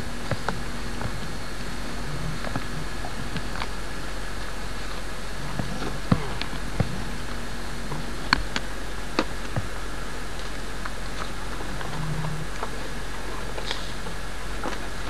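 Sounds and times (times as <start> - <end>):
steady tape hiss and hum: 0.0 - 15.0.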